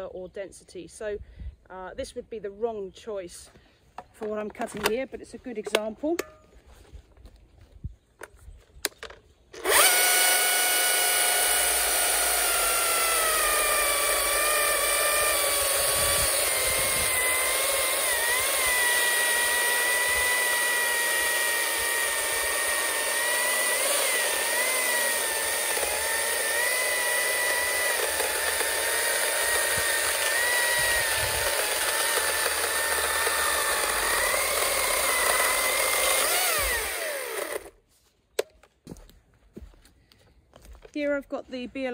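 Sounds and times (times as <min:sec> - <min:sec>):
chainsaw cutting log: 0:09.5 - 0:37.8.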